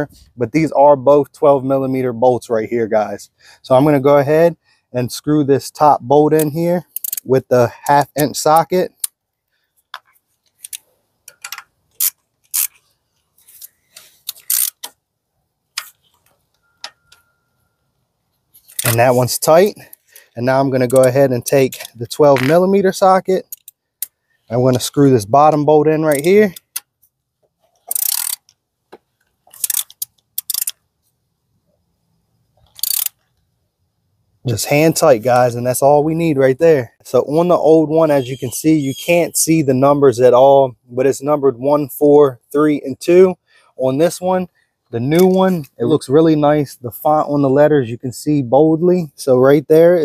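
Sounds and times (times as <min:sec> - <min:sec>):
metal on metal clicks: 0:06.4 - 0:09.2, 0:09.9 - 0:12.8, 0:18.6 - 0:22.7, 0:29.5 - 0:30.8
ratchet clicking: 0:06.9 - 0:07.3, 0:10.6 - 0:12.8, 0:14.2 - 0:14.9, 0:23.5 - 0:24.1, 0:27.9 - 0:28.5, 0:29.5 - 0:30.8, 0:32.6 - 0:33.2.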